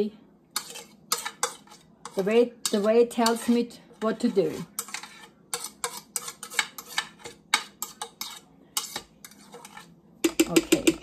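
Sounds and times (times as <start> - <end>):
utensil scraping a ceramic plate: 0.6 - 11.0.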